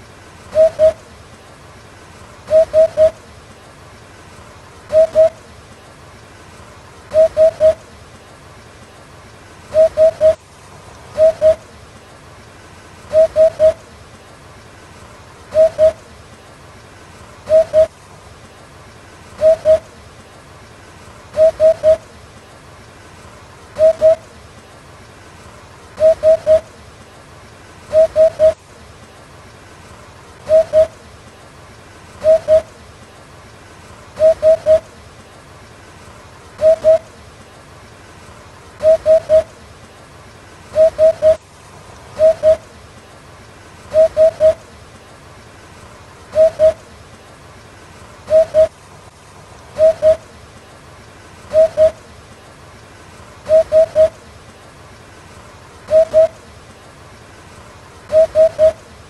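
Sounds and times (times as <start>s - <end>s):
faint steady hiss: 0.0s - 59.0s
hoopoe hooting: 0.6s - 1.0s, 2.5s - 3.2s, 7.1s - 7.8s, 11.2s - 11.6s, 15.5s - 16.0s, 17.5s - 17.9s, 19.4s - 19.9s, 23.8s - 24.2s, 27.9s - 28.6s, 30.5s - 31.0s, 32.2s - 32.7s, 34.2s - 34.8s, 36.6s - 37.1s, 38.8s - 39.5s, 40.8s - 41.4s, 42.2s - 42.6s, 43.9s - 44.6s, 46.3s - 46.8s, 48.3s - 48.7s, 49.8s - 50.2s, 51.5s - 52.0s, 53.5s - 54.2s, 55.9s - 56.4s, 58.1s - 58.8s.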